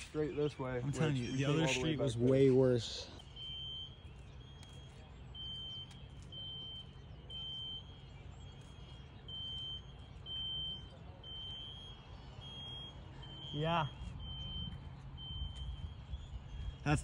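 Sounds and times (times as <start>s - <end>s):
electronic alarm beeping: 0.0s - 17.0s.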